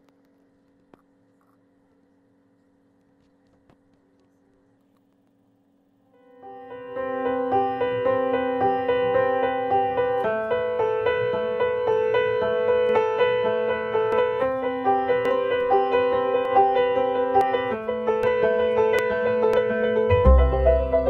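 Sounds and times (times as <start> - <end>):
gentle piano music: 6.1 - 21.0.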